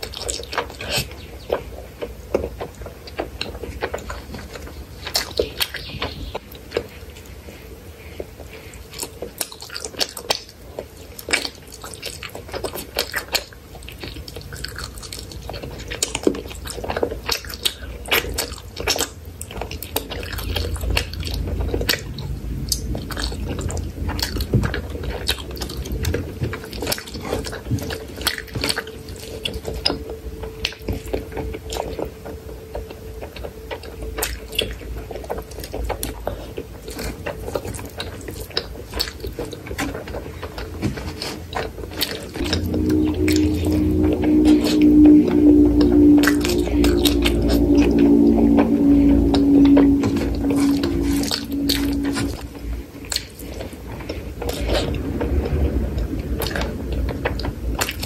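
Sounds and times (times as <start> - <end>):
wet chewing and lip-smacking: 0.0 - 7.3, 8.1 - 42.4.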